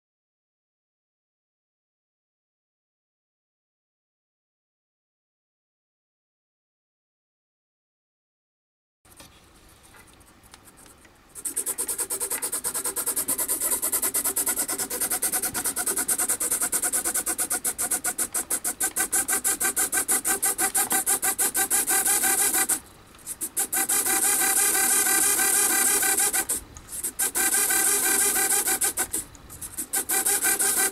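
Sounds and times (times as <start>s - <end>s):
servos buzzing: 11.4s - 30.9s.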